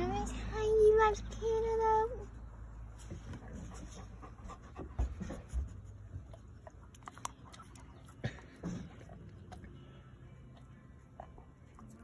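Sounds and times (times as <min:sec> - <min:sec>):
dog chewing wetly: 0:06.2 - 0:12.0.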